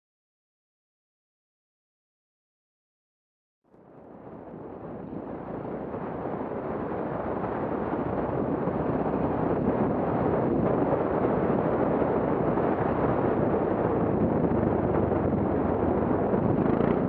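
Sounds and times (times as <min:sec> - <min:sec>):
tyres on dirt road: 0:03.8 - 0:17.0
wind noise on microphone: 0:03.8 - 0:17.0
motorcycle engine running: 0:04.6 - 0:17.0.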